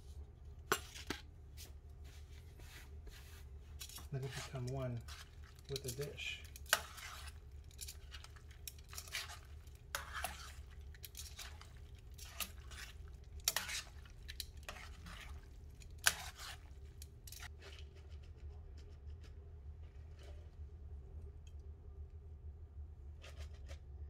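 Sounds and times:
metal tongs clinking on a skillet: 5.6 - 14.9.

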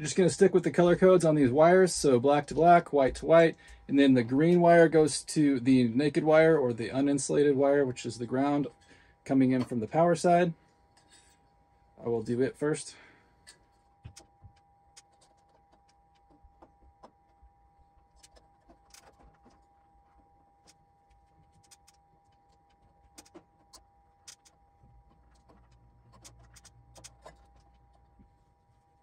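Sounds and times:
faint steady whine: 0.0 - 29.0
electrical wires being twisted: 13.4 - 28.4.

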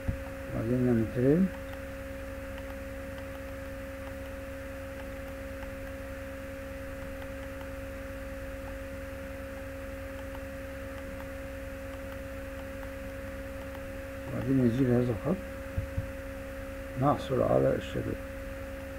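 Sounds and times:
electrical hum: 0.0 - 18.9
faint mouse clicks: 2.5 - 3.4.

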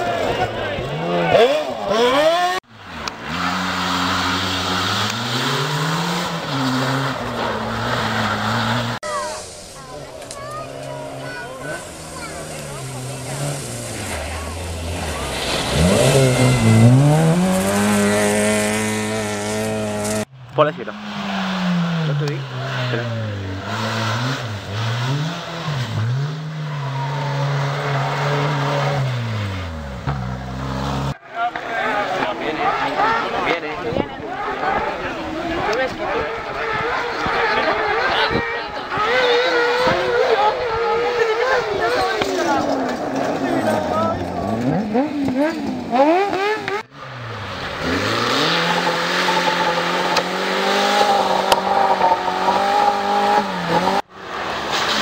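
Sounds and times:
rally car engine at full throttle: 0.0 - 55.0
tyres hissing on gravel: 8.5 - 17.2.

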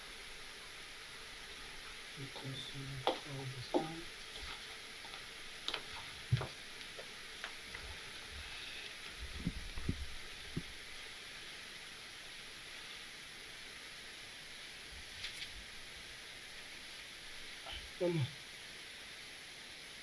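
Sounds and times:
room noise hiss: 0.0 - 20.0
soft low thumps: 9.2 - 10.8.

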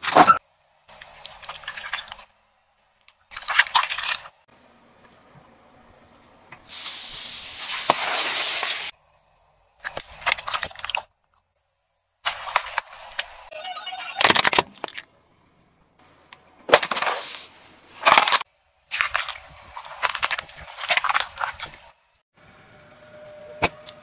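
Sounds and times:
liquid spraying: 6.7 - 8.9
plastic bottles crunching under tyre: 9.8 - 11.1, 14.2 - 15.1, 16.7 - 21.9.

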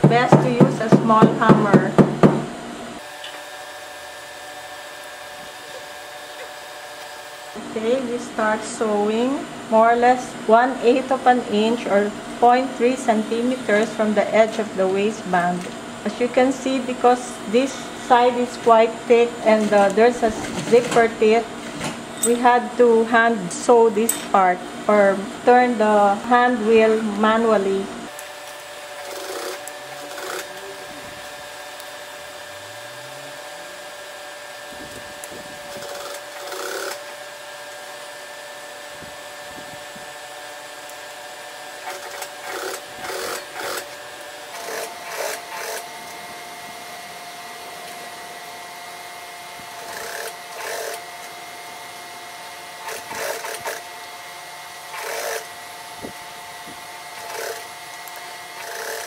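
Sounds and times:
motor hum: 0.0 - 59.0
sewing machine stitching: 28.9 - 30.8, 35.7 - 37.1, 41.8 - 43.9, 44.5 - 45.8, 49.8 - 51.0, 52.8 - 53.9, 54.9 - 55.5, 57.2 - 57.7, 58.6 - 59.0.

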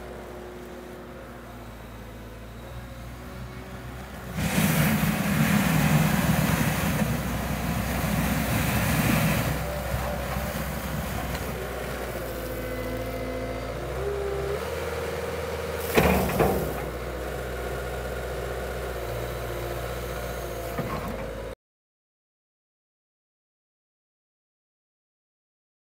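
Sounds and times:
diesel loader engine running: 0.0 - 21.6
bucket pushing snow: 4.2 - 12.6, 15.7 - 17.0.

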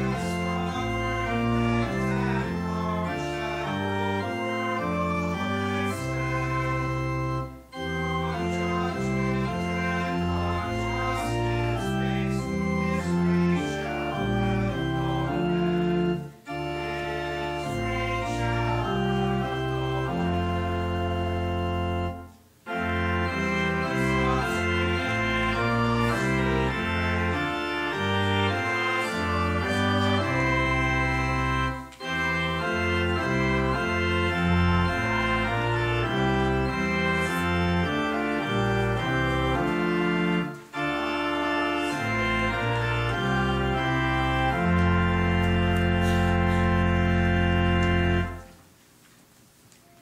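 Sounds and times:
church organ playing hymn chords: 0.0 - 48.6.

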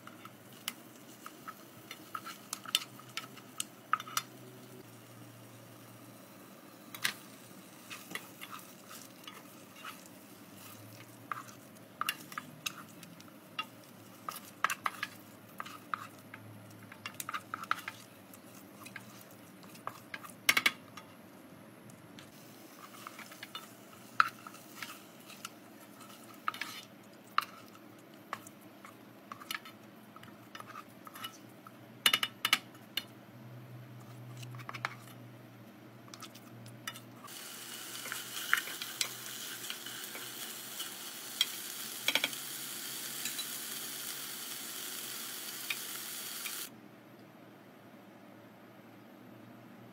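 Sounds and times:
wooden spoon scraping a pot: 22.8 - 27.7.

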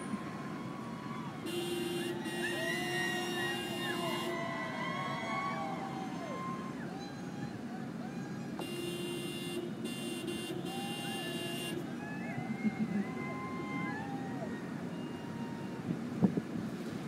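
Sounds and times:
crowd voices: 0.0 - 16.0
traffic: 0.0 - 17.0
vehicle horn: 1.4 - 4.4, 8.6 - 11.9.

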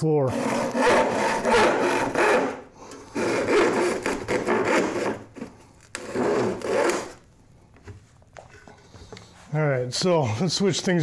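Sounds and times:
hand saw cutting wood: 0.3 - 7.2.

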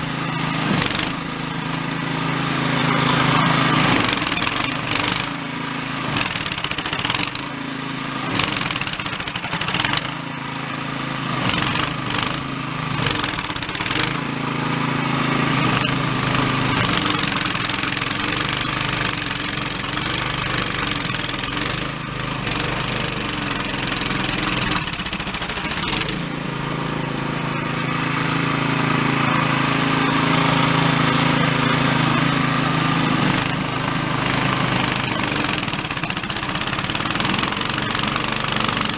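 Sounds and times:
snowblower engine running under load: 0.0 - 38.9.

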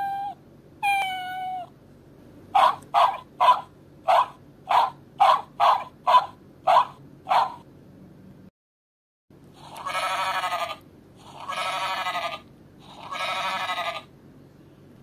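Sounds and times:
recorded sheep bleating from speaker: 13.0 - 14.1.

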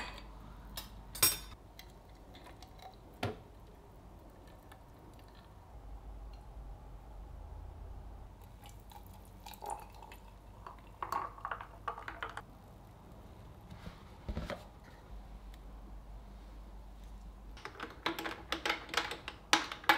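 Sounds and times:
liquid pouring: 8.4 - 12.4.

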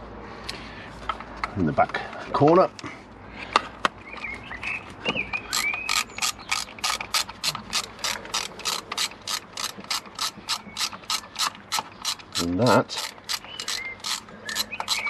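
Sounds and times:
ratchet pawl clicks: 5.5 - 15.0.

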